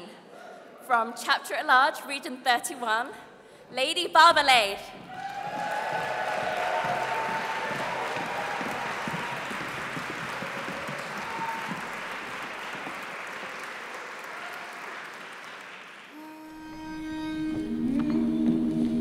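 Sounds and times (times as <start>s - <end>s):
audience applause: 5.0s - 16.2s.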